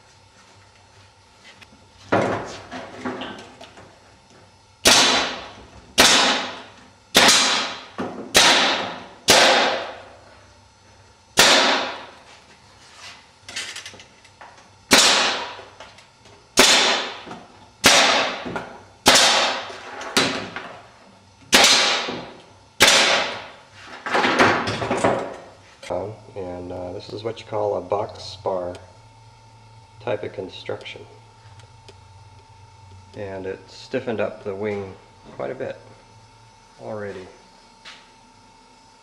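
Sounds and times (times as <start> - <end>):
pneumatic staple gun firing: 6.0 - 9.9, 14.9 - 15.5, 17.8 - 18.4, 21.5 - 22.1.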